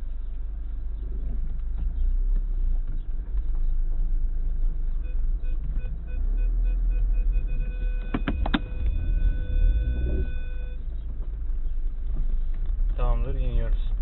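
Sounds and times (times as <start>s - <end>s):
car rumbling over dirt road: 0.0s - 14.0s
short electronic beeps: 5.0s - 10.9s.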